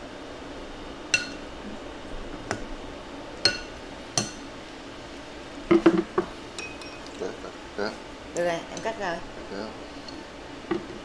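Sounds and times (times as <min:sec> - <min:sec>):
utensil clinking on ceramic dish: 0:06.6 - 0:07.2.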